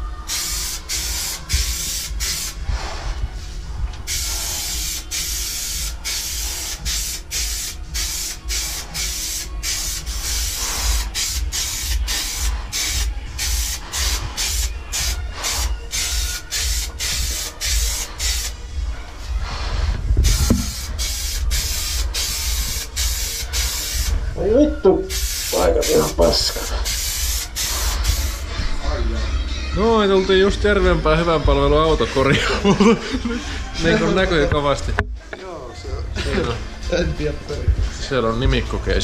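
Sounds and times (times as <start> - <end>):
aerosol can hissing bursts: 0.2 - 3.0, 4.0 - 18.6, 20.2 - 24.2, 25.1 - 28.5
low rumble: 2.6 - 4.5.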